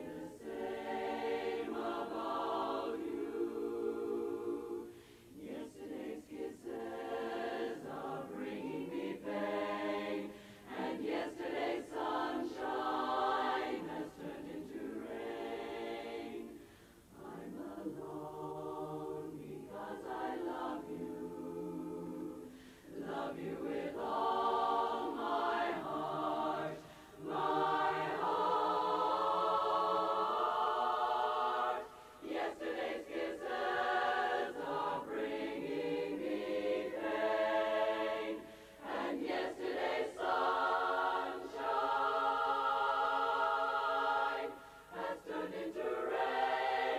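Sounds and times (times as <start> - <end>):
women's chorus singing a cappella: 0.0 - 46.9
singers breathing: 4.8 - 5.4, 10.2 - 10.8, 16.5 - 17.1, 22.4 - 23.0, 26.8 - 27.2, 31.9 - 32.2, 38.4 - 38.8, 44.5 - 45.0.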